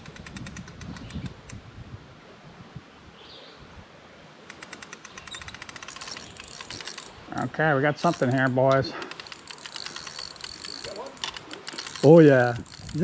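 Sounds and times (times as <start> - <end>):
fishing reel ratchet clicking: 0.0 - 1.6, 4.5 - 7.2, 7.9 - 13.0.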